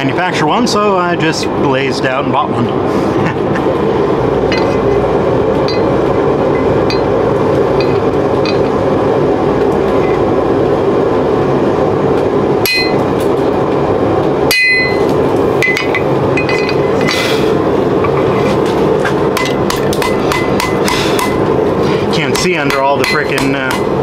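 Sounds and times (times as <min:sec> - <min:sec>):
loud rushing noise: 0:01.0 - 0:22.7
hammer ringing on metal die: 0:14.5 - 0:15.0, 0:22.3 - 0:24.0.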